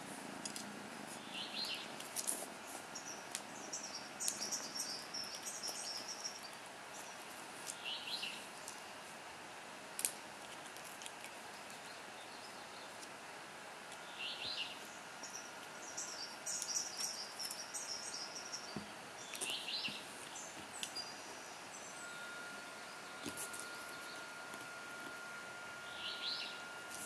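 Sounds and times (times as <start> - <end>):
faint bird chirps: 2.9 - 8.8, 14.0 - 24.9, 25.8 - 26.7.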